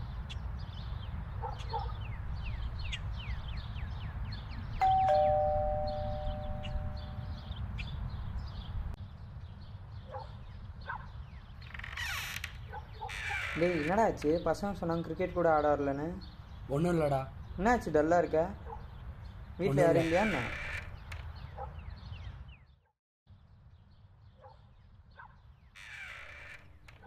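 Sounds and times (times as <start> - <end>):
small birds chirping: 0.0 - 27.0
doorbell ding-dong chime: 4.8 - 7.3.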